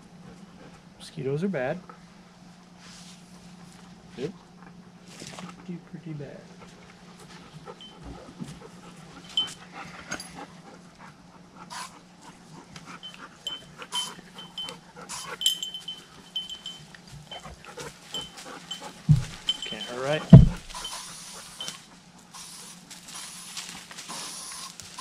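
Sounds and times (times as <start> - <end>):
dog panting: 0.1 - 0.9, 4.6 - 25.0
gear clicks and rustles: 6.7 - 10.8, 12.2 - 25.0.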